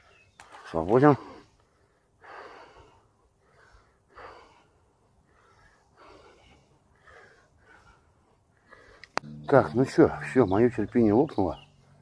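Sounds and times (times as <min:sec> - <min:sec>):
man breathing: 0:01.2 - 0:09.3.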